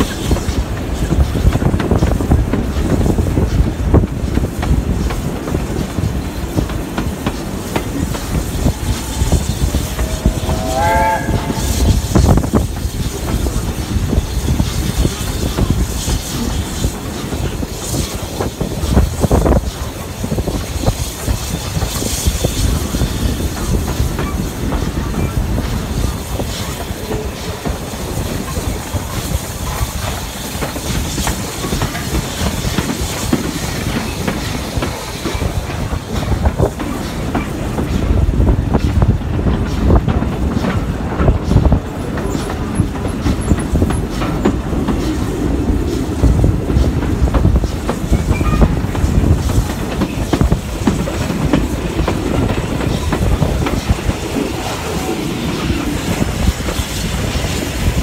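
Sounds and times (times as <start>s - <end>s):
train carriages rumbling: 0.0s - 58.0s.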